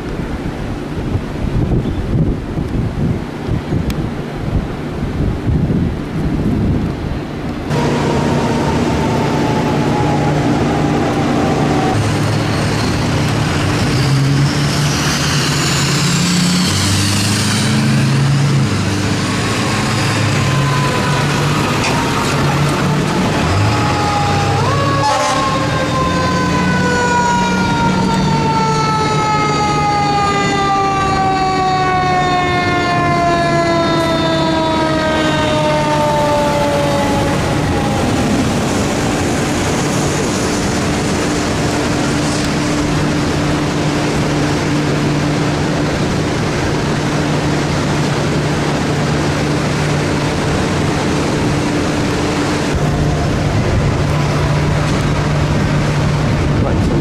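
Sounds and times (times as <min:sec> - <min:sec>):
engine and traffic drone: 0:00.0 - 0:57.0
siren falling in pitch: 0:07.7 - 0:12.2, 0:19.3 - 0:39.2.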